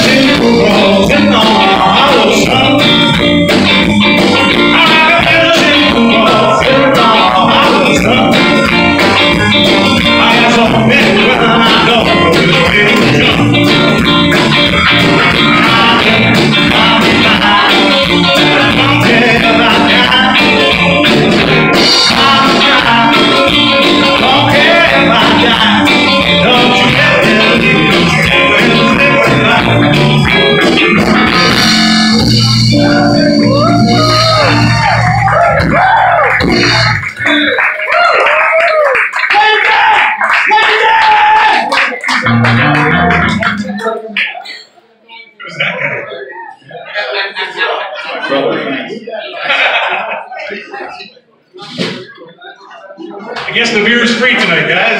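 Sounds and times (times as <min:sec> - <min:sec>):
drum kit: 0:00.0 - 0:38.1, 0:39.8 - 0:43.9, 0:51.6 - 0:52.1
electric guitars: 0:00.0 - 0:38.9, 0:39.9 - 0:44.6.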